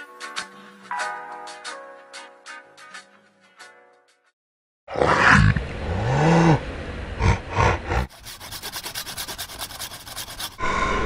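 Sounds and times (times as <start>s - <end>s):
loud growling vocal noises: 4.9s - 8.1s
fast even rasping: 4.9s - 10.7s.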